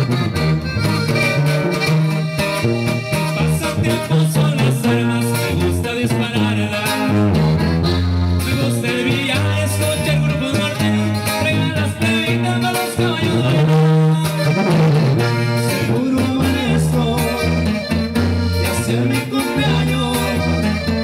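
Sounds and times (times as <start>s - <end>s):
accordion melody: 0.0s - 21.0s
acoustic guitar: 0.0s - 21.0s
tuba bass line: 0.0s - 21.0s
sung vocals: 2.6s - 7.8s, 8.4s - 21.0s.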